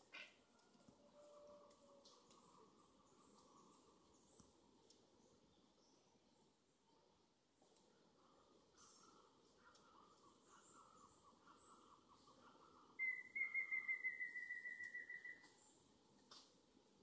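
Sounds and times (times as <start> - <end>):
bird calling quick repeated notes: 13.0 - 15.4.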